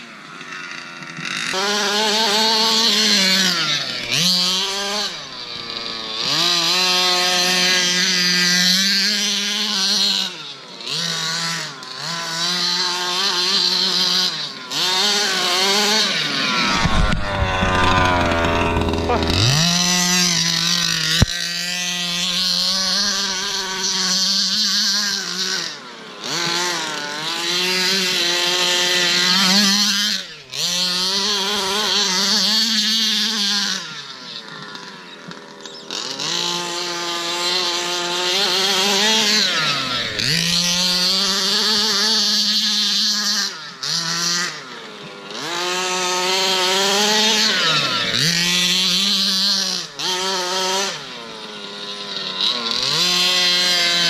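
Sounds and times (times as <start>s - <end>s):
two-stroke engine revving: 0.0s - 54.0s.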